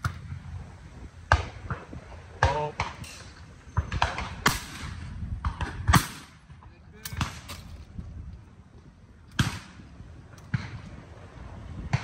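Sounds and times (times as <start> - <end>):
shotgun shots with echo: 3.8 - 7.6, 9.4 - 9.8.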